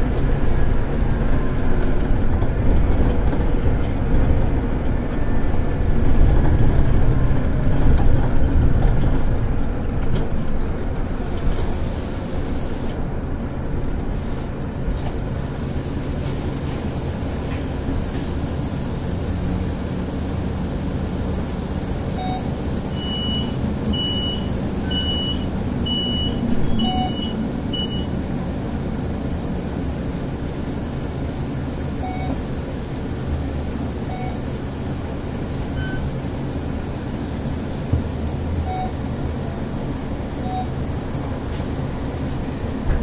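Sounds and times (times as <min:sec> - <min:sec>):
bus engine droning: 0:00.0 - 0:43.0
short high beeps: 0:22.2 - 0:28.1.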